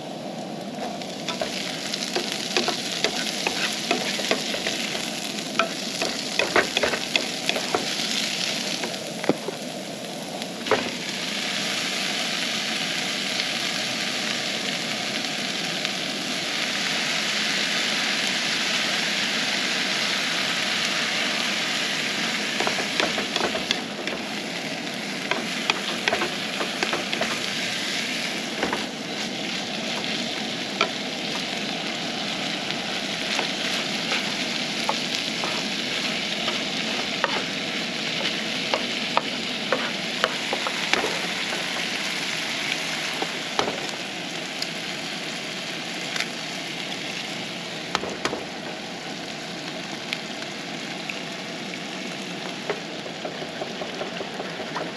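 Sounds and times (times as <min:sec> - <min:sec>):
fried rice sizzling in skillet: 0:00.0 - 0:54.9
wooden spatula scraping pan: 0:00.8 - 0:09.6, 0:22.6 - 0:24.6, 0:25.3 - 0:31.6, 0:33.2 - 0:42.1.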